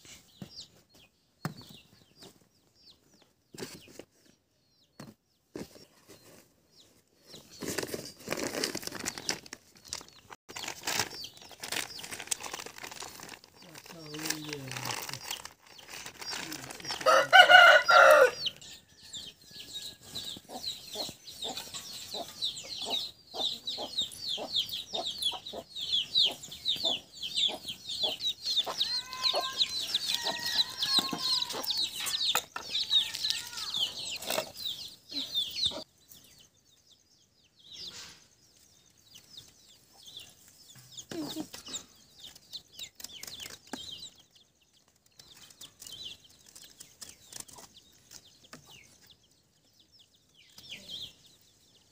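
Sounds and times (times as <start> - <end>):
chickens chirping: 0.0 - 51.9
chickens clucking: 20.0 - 36.0.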